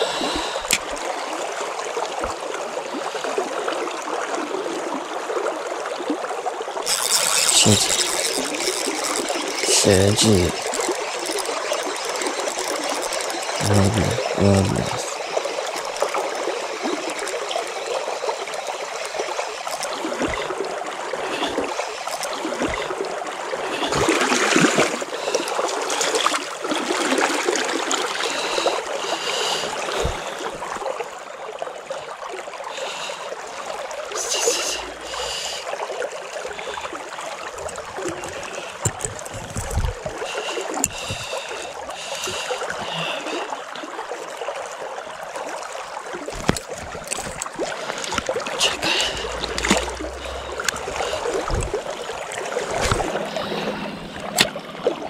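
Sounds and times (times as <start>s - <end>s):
river water running: 0.0s - 55.0s
water splashing surge: 46.8s - 55.0s.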